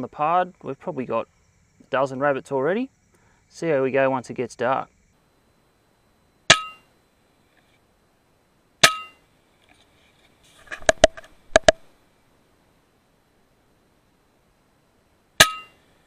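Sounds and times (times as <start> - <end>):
sharp clicks: 10.8 - 11.9.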